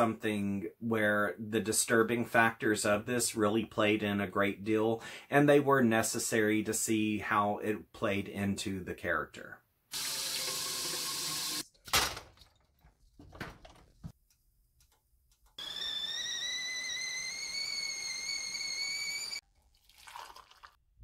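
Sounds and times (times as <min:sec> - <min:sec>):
kettle whistling: 0:15.6 - 0:19.4.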